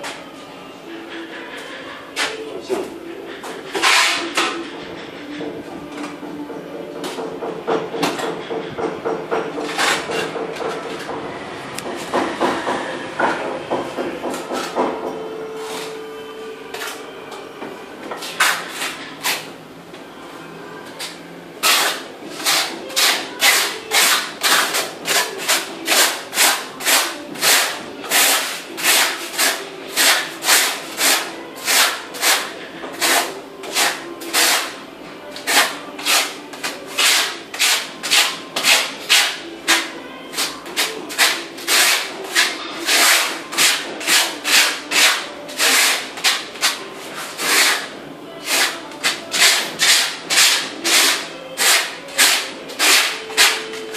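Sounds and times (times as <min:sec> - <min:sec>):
trowel scraping mortar on tile: 0:03.7 - 0:04.6, 0:21.6 - 0:34.8, 0:35.4 - 0:53.9.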